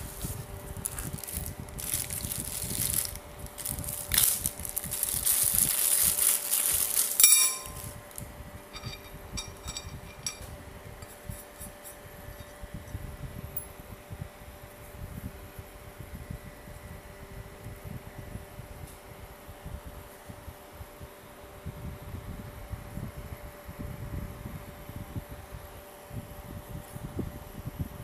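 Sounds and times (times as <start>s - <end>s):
plastic bag crinkling: 0.0s - 8.2s
sharp metallic clink: 7.2s - 8.0s, 8.7s - 10.5s.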